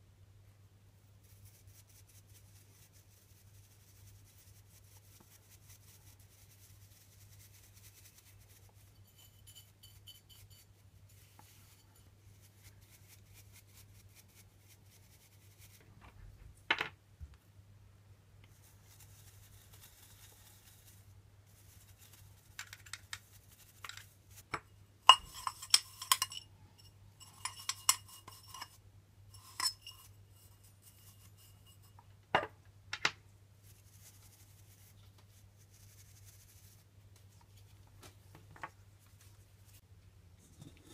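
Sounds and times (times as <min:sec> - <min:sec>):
metallic clinks and taps: 0:09.0 - 0:10.6, 0:23.9 - 0:28.8, 0:29.4 - 0:30.1
brush bristles scrubbing: 0:18.5 - 0:24.5, 0:25.1 - 0:26.4, 0:27.2 - 0:28.8, 0:29.4 - 0:31.8.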